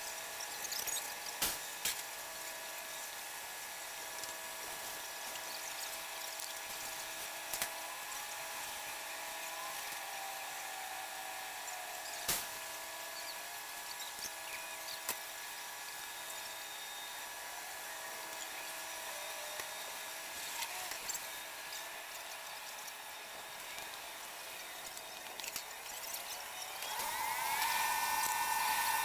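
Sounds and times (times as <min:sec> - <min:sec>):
concrete mixer truck whine: 0:26.2 - 0:29.0.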